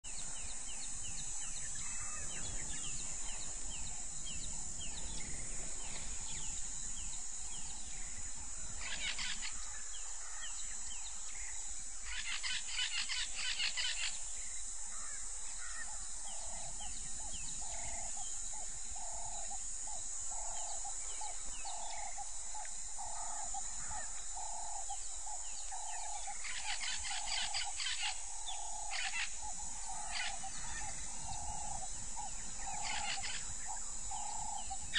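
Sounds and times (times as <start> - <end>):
birds chirping: 0.1 - 34.9
harsh rattling bird calls: 0.1 - 34.9
steady high hiss: 0.1 - 34.9.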